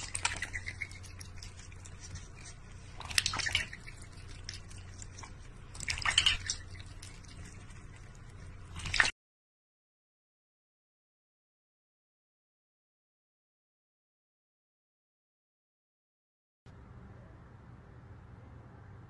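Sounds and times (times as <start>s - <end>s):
duck splashing in water bowl: 0.0s - 9.1s.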